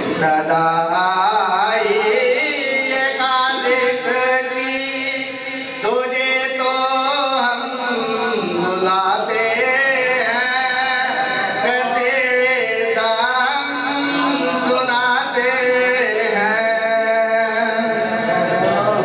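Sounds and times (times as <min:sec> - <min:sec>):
man singing into microphone: 0:00.0 - 0:19.0.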